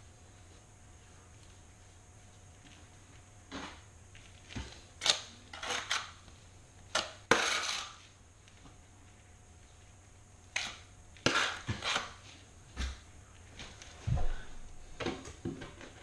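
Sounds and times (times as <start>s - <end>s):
trowel and tile scraping: 5.0s - 6.2s, 6.9s - 8.1s, 10.5s - 12.2s.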